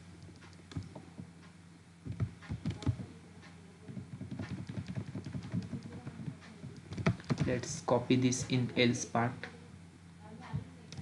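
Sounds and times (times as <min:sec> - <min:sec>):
computer keyboard keys clicking: 0:00.2 - 0:01.0, 0:02.1 - 0:03.0, 0:03.9 - 0:07.6.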